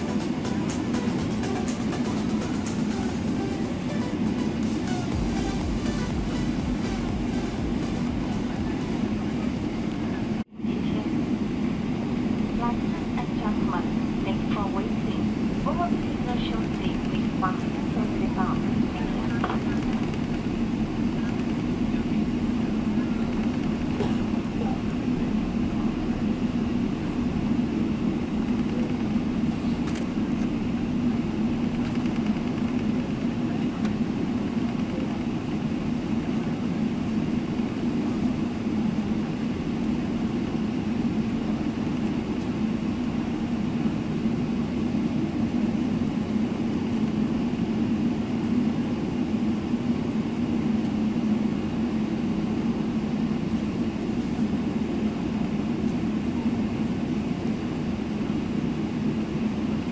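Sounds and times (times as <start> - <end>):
airplane cabin engine drone: 0.0 - 59.9.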